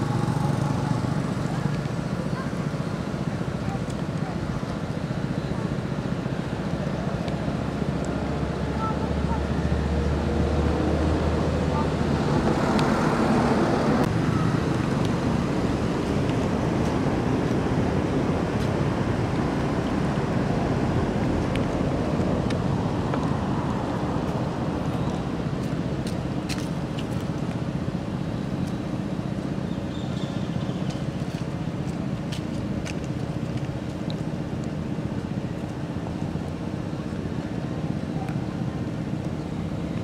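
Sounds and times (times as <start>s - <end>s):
outdoor background rumble: 0.0s - 40.0s.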